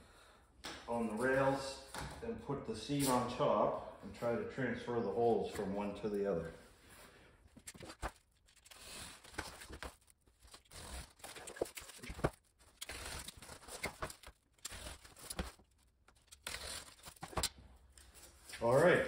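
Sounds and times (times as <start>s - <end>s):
utility knife cutting cardboard: 8.6s - 17.5s.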